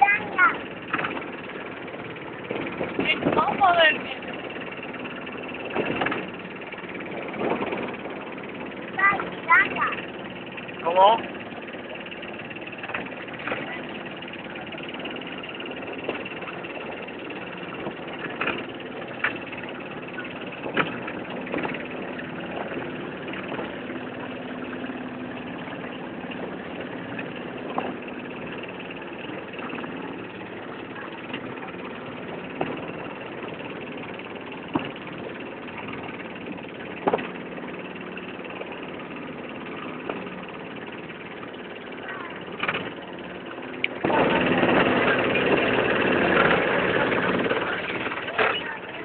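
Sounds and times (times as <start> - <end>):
boat motor running: 0.0 - 49.0.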